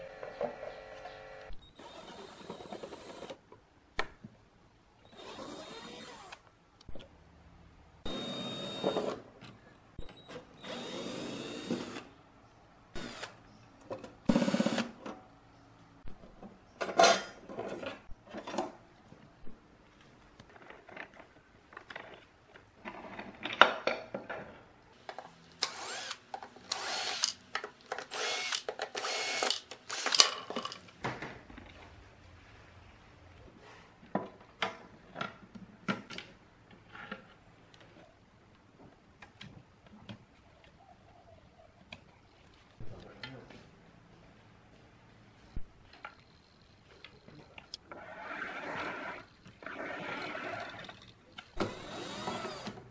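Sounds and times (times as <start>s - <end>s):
cordless drill whirring: 0.8s - 3.4s, 5.1s - 6.4s, 8.1s - 9.2s, 10.6s - 12.1s, 13.0s - 13.4s, 25.6s - 30.3s, 51.6s - 52.8s
screws clicking and clattering: 25.6s - 30.9s.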